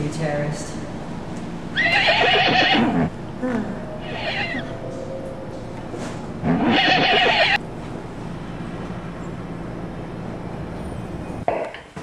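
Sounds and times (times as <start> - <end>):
horse whinnying: 1.7 - 3.1, 4.0 - 4.8, 6.4 - 7.6.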